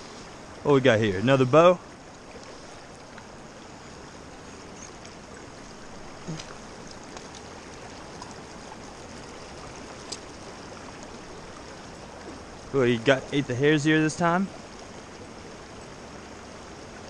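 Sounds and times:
creek water flowing over rocks: 0.0s - 17.0s.

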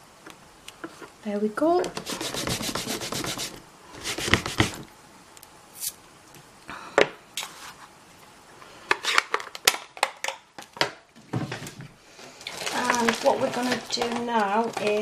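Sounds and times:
hands rustling craft supplies: 1.9s - 4.9s, 11.5s - 15.0s.

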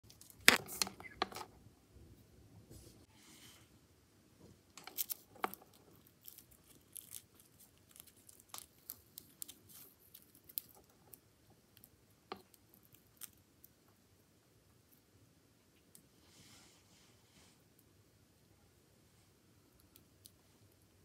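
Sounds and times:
scorpion crunching insect: 4.8s - 11.2s.

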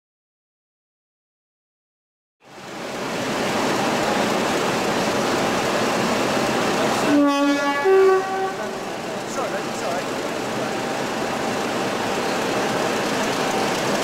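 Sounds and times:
diesel locomotive running: 2.4s - 14.0s
two-note train horn: 7.0s - 9.0s.

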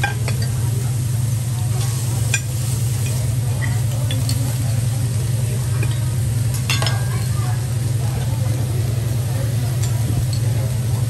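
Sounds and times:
food sizzling on a griddle: 0.0s - 11.0s
steady low hum: 0.0s - 11.0s
metal utensils clinking: 5.8s - 7.4s.

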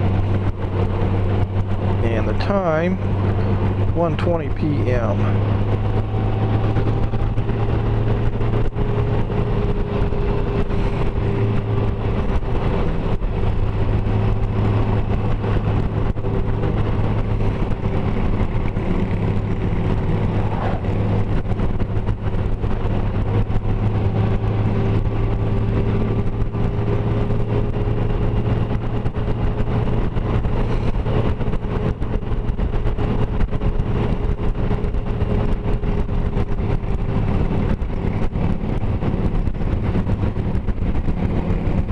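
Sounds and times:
motorcycle engine drone: 0.0s - 41.9s
wind and road noise: 0.0s - 41.9s.

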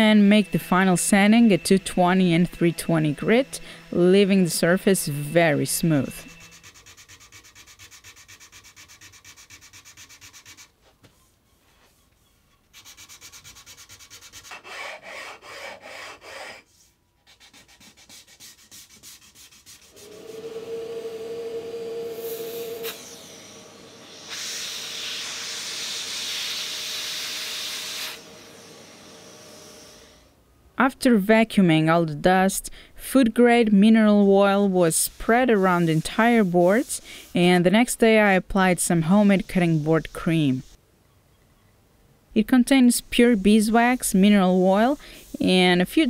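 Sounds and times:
sandpaper rubbing on wood: 5.9s - 20.1s, 34.1s - 40.8s, 43.1s - 46.0s
vacuum whine and hiss: 19.9s - 30.3s.

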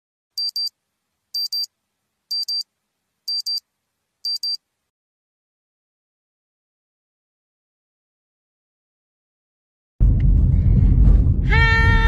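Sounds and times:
high-pitched alarm double beep: 0.4s - 0.7s, 1.4s - 1.7s, 2.3s - 2.6s, 3.3s - 3.6s, 4.3s - 4.6s.

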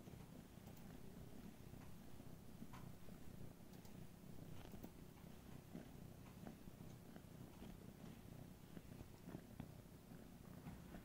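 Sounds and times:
cat purring: 0.0s - 11.0s
soft clicks: 0.2s - 2.0s, 2.6s - 3.0s, 3.7s - 5.3s.

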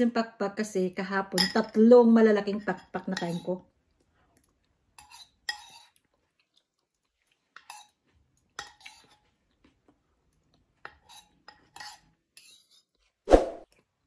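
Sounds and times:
metal spoon clinking on a bowl: 1.3s - 1.8s, 2.7s - 3.5s.

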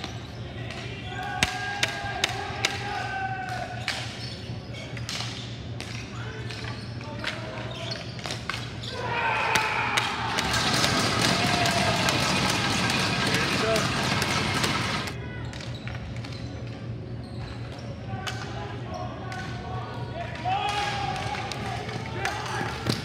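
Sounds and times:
players shouting: 0.5s - 3.9s, 8.8s - 15.4s, 18.1s - 23.0s
people cheering: 8.8s - 15.4s, 20.2s - 23.0s.

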